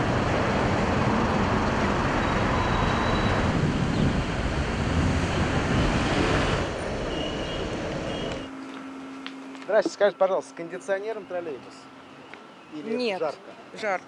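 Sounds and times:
street traffic noise: 0.0 - 14.0
wind buffeting microphone: 3.0 - 8.5.

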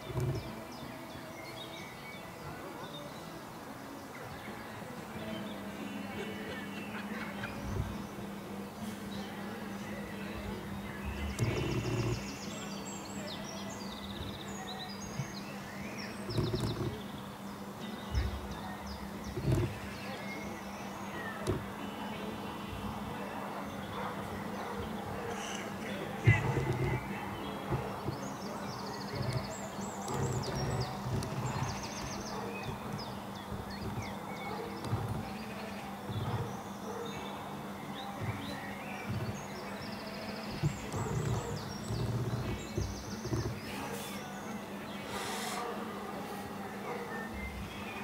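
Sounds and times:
songbirds chirping and singing: 0.0 - 48.0
dull low thumps: 26.1 - 36.6.

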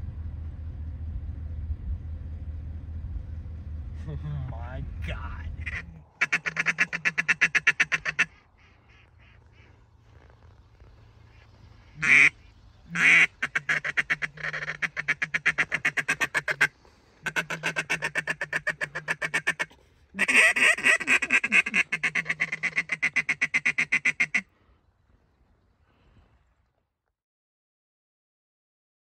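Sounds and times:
duck quacking: 5.6 - 10.2, 11.3 - 24.5.

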